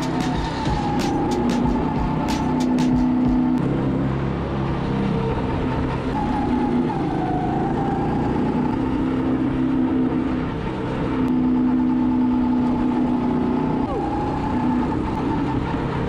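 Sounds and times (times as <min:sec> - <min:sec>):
go-kart engine running: 0:00.0 - 0:16.0.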